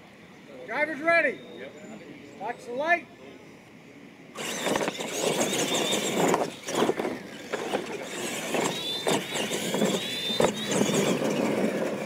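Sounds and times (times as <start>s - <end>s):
electric motor and gear whine: 4.4s - 12.0s
tyres scrabbling over dirt: 4.4s - 12.0s.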